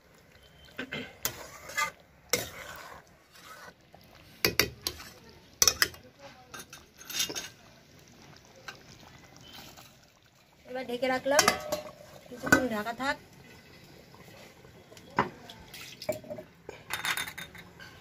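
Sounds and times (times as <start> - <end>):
metal spatula scraping a pan: 0.5 - 7.6.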